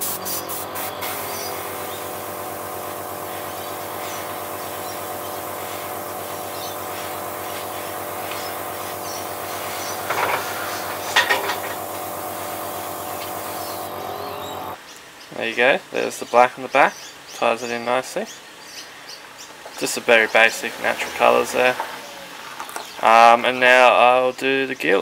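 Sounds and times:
airbrush compressor humming: 0:00.0 - 0:14.8, 0:20.2 - 0:22.3
airbrush spray bursts: 0:00.0 - 0:14.8.

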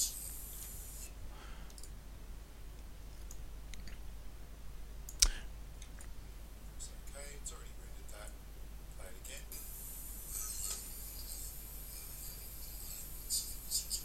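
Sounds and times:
computer mouse clicks: 0:01.7 - 0:01.9.

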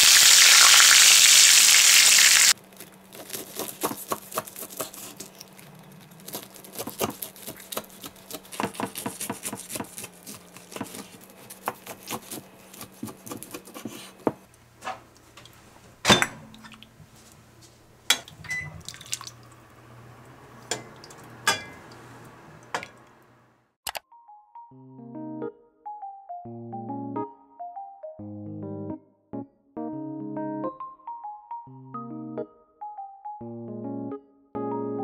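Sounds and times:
knife crunching through crust: 0:02.6 - 0:14.2
ceramic bowl and saucepan clinks: 0:20.7 - 0:21.9.

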